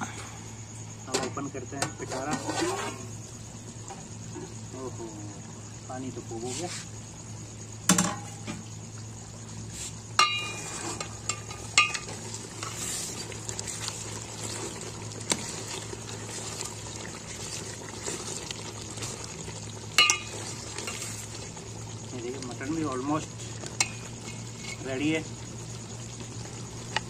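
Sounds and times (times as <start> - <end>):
steady low hum: 0.0 - 27.0
ladle clinking on metal pot: 10.2 - 12.1, 20.0 - 20.4
ladle stirring stew: 10.2 - 21.8.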